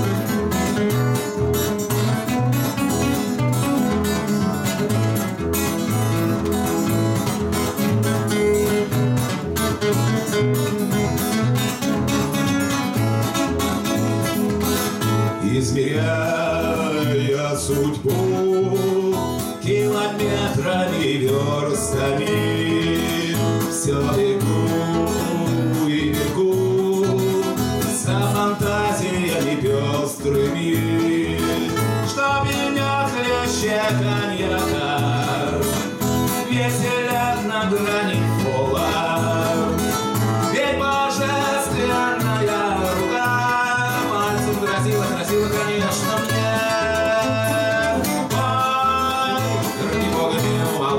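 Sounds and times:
acoustic guitars strummed: 0:00.0 - 0:50.9
men singing: 0:15.3 - 0:50.9.

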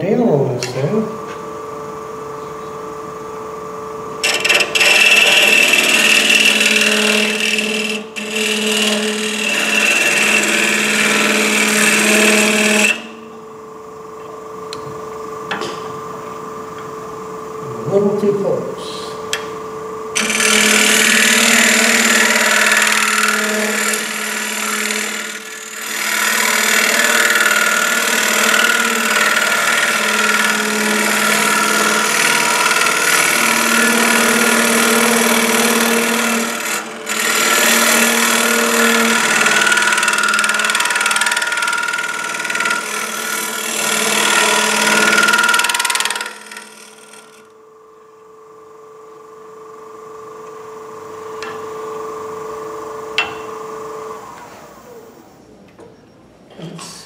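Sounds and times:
lathe humming: 0:00.0 - 0:55.6
turning tool cutting wood: 0:04.2 - 0:13.2, 0:20.2 - 0:47.6.

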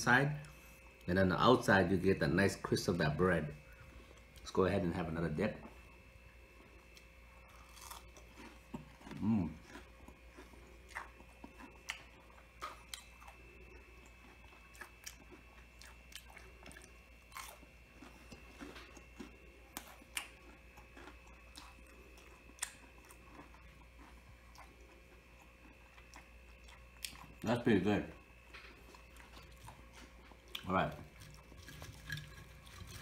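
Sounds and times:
person chewing crunchy food: 0:06.7 - 0:27.4, 0:28.3 - 0:33.0.

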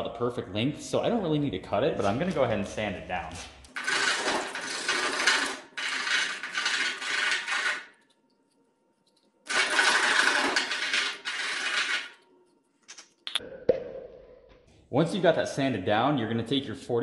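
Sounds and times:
pipe scraping on sandpaper: 0:03.8 - 0:07.9, 0:09.5 - 0:12.2.

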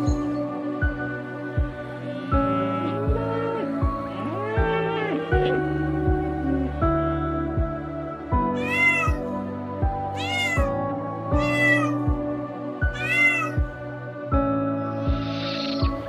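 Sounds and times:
background music with steady beat: 0:00.0 - 0:16.0
cat meowing: 0:08.5 - 0:09.4, 0:10.1 - 0:12.1, 0:12.8 - 0:13.7.

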